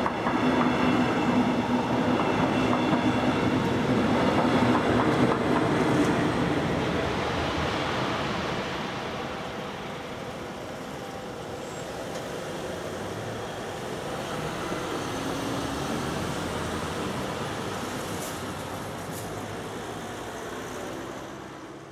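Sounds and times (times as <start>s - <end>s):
cars driving past: 14.2s - 21.9s.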